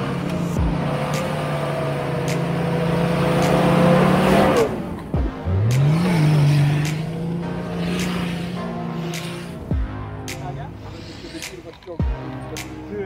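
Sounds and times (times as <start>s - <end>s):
off-road vehicle engine: 0.0s - 13.0s.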